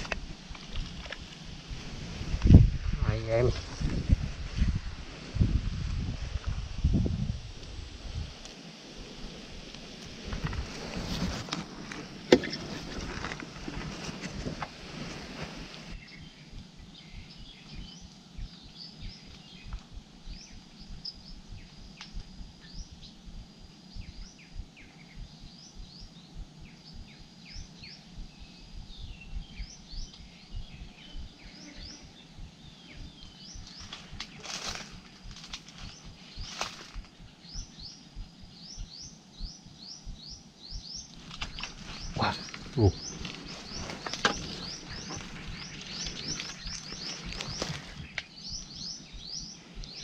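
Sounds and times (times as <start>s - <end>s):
rustles: 0.0s - 50.0s
wind buffeting microphone: 0.0s - 50.0s
small birds chirping: 15.1s - 50.0s.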